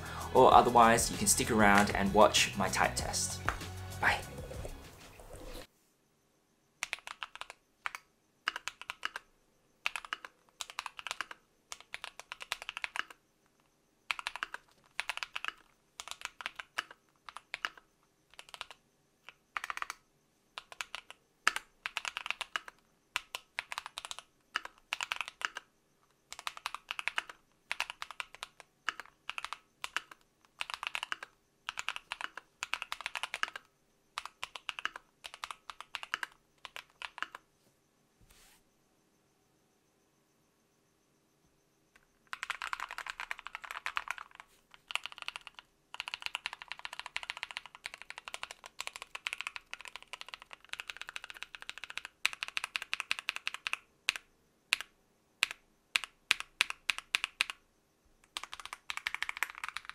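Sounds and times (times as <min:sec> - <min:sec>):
mechanical keyboard typing: 0:06.8 - 0:13.2, 0:14.1 - 0:20.0, 0:20.6 - 0:37.4, 0:42.0 - 0:57.6, 0:58.2 - 0:59.9.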